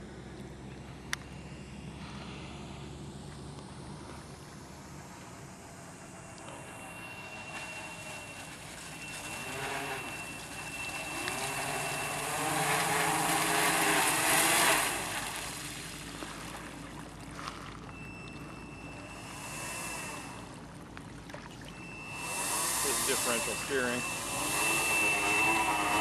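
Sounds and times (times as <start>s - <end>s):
electric motors and propellers: 0.0s - 26.0s
hull rushing through water spray: 5.7s - 26.0s.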